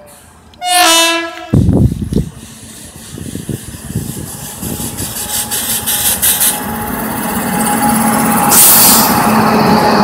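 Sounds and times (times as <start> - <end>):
locomotive hum: 0.0 - 10.0
rush of passing train: 0.0 - 10.0
wheels rumbling on rail: 0.0 - 10.0.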